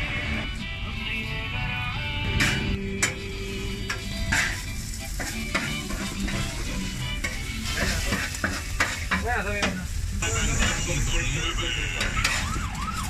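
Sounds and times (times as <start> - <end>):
meat sizzling on griddle: 0.0 - 13.0
metal blade scraping griddle: 3.9 - 10.8.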